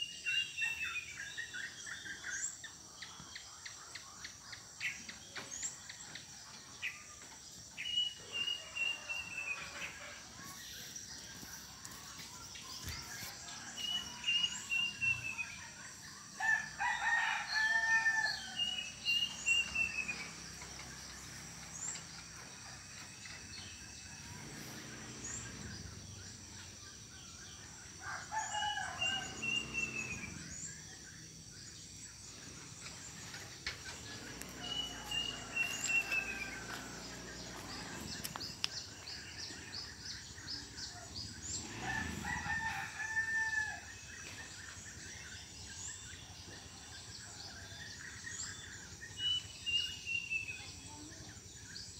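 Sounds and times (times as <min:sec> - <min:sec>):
roosters crowing: 0:16.3 - 0:21.8, 0:27.8 - 0:30.7, 0:32.2 - 0:44.9.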